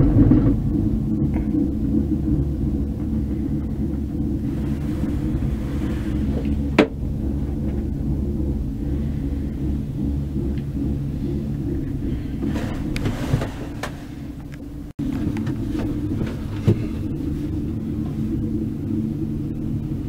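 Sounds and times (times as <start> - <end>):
gondola cabin rumble: 0.0 - 20.0.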